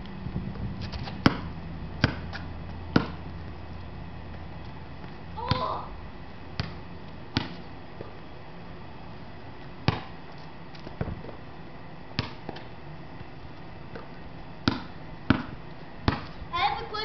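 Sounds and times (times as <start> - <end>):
basketball thudding: 1.1 - 3.3, 5.0 - 5.8, 6.5 - 8.1, 9.8 - 10.2, 11.0 - 11.3, 12.1 - 12.7, 13.9 - 16.4.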